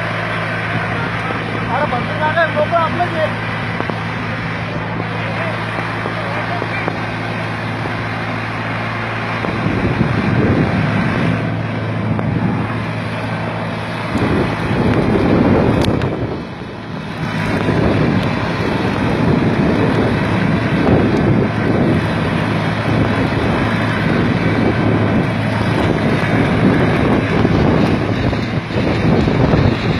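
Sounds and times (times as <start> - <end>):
diesel tractor engine running: 0.0 - 29.9
wind buffeting microphone: 0.0 - 29.9.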